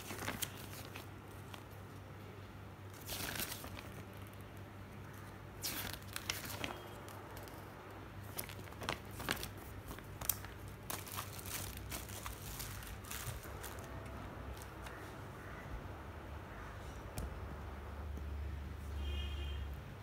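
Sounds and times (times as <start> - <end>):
paper pages rustling: 0.0 - 2.0, 2.9 - 15.2.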